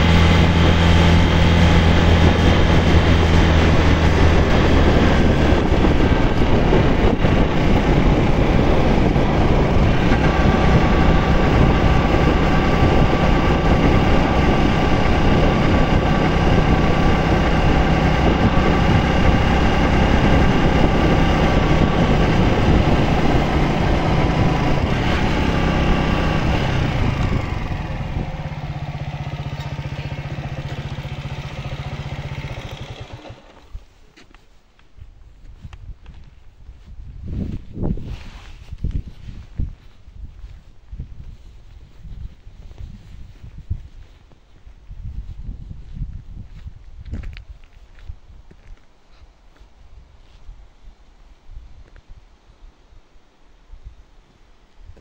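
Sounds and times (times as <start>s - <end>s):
wind rush: 0.0s - 33.9s, 35.2s - 48.6s
motorcycle engine running: 0.0s - 34.0s.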